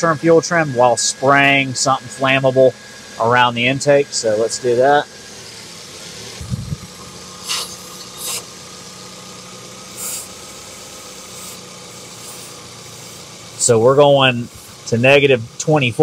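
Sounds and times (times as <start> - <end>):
car engine idling with misfire: 0.0 - 16.0
aerosol spray hisses: 7.4 - 8.5, 9.9 - 13.7, 14.4 - 14.9.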